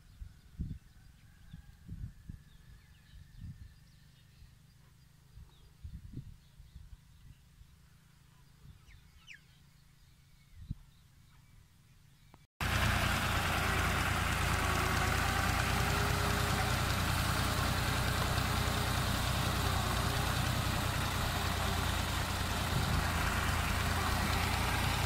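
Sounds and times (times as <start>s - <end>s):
tractor diesel engine idling: 12.6s - 25.0s.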